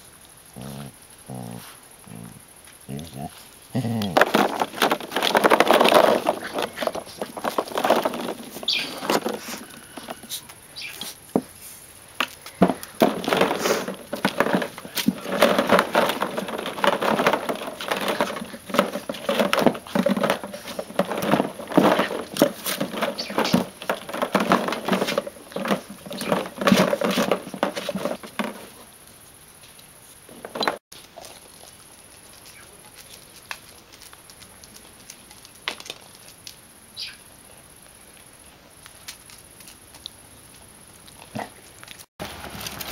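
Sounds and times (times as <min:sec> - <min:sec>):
plastic balls rattling and clacking: 0:04.0 - 0:10.3, 0:12.2 - 0:28.9, 0:30.3 - 0:30.8.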